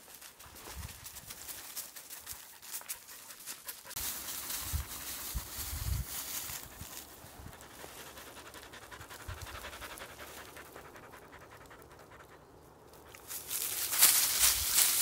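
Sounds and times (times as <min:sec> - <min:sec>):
puppy panting: 0:02.1 - 0:04.0, 0:06.6 - 0:12.7.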